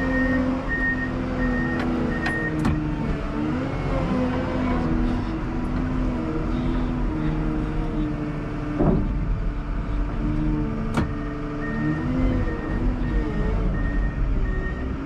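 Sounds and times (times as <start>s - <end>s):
loader diesel engine running: 0.0s - 15.0s
clunk: 8.8s - 9.3s.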